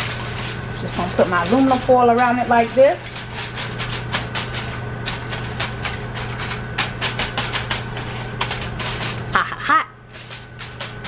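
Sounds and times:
aluminum foil crinkling: 0.0 - 11.0
steady low hum: 0.0 - 11.0.

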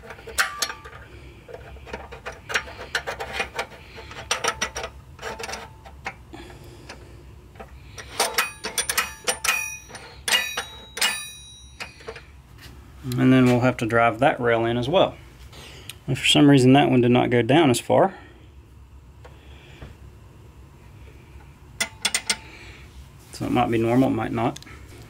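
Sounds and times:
metal parts clicking and clinking: 0.0 - 6.0, 7.6 - 12.3, 21.8 - 22.4.

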